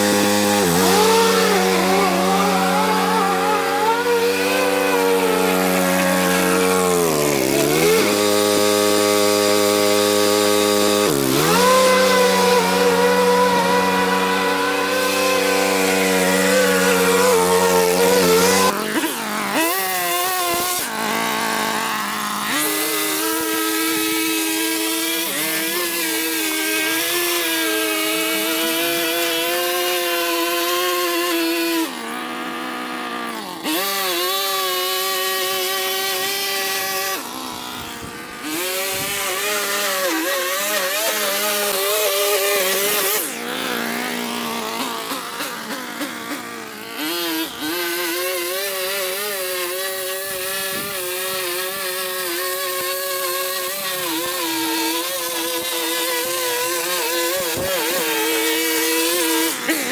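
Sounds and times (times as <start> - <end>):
lawn mower engines running: 0.0 - 59.9.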